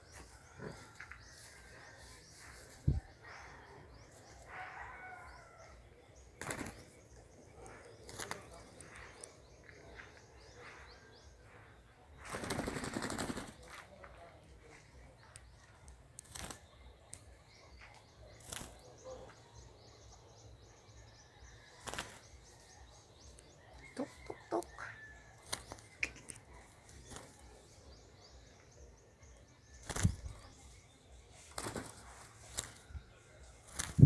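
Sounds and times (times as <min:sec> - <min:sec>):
bird wings flapping: 0:06.4 - 0:06.9, 0:08.0 - 0:09.0, 0:12.2 - 0:13.9, 0:16.2 - 0:16.6, 0:18.4 - 0:18.8, 0:21.8 - 0:22.3, 0:29.8 - 0:30.4, 0:31.4 - 0:32.8, 0:33.6 - 0:34.0.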